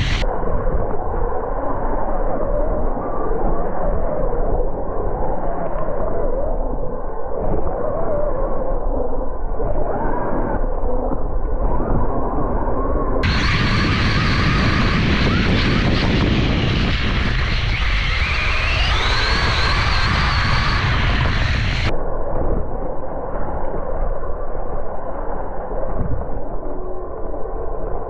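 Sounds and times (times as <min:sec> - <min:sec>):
heavy rumble: 0:00.0 - 0:03.1, 0:07.4 - 0:25.0
electric motor whine: 0:13.2 - 0:21.9.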